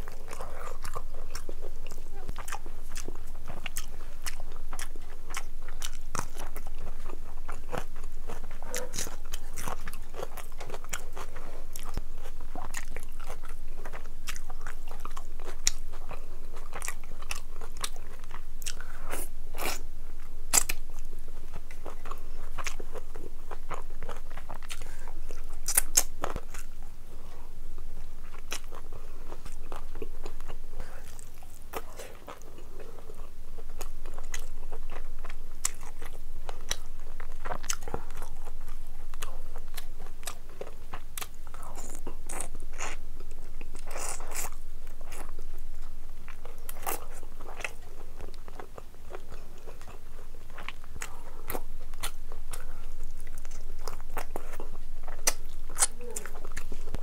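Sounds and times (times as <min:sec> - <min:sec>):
person chewing with wet mouth clicks: 0:20.5 - 0:26.7, 0:28.2 - 0:57.0.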